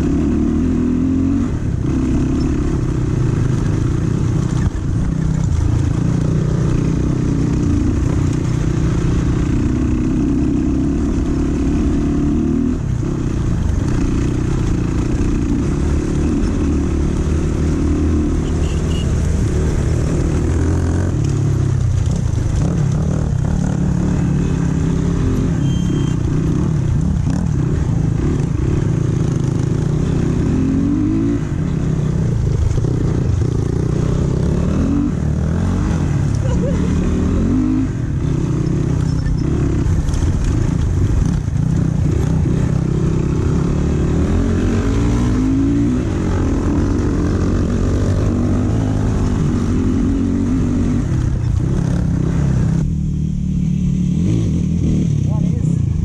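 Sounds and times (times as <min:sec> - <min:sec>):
dirt bike engine revving: 0:13.9 - 0:52.9.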